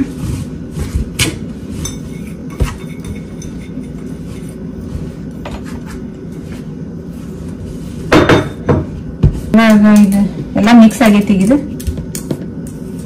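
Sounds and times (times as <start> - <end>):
hand mixing in steel bowl: 0.0 - 8.2
bowl clinking: 1.8 - 4.1.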